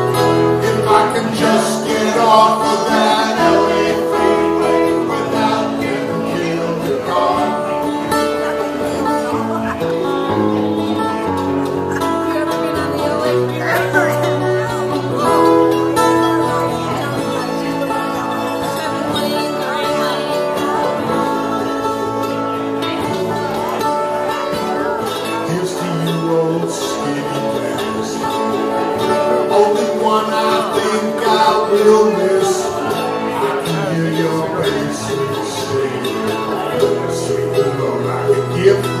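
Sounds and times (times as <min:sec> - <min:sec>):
country band playing: 0:00.0 - 0:39.0.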